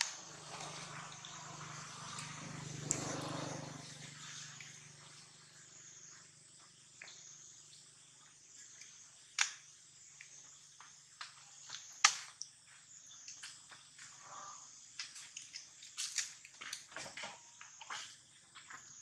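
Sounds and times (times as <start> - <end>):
high insect hum: 0.0 - 19.0
sharp clicks and crackles: 8.8 - 9.6.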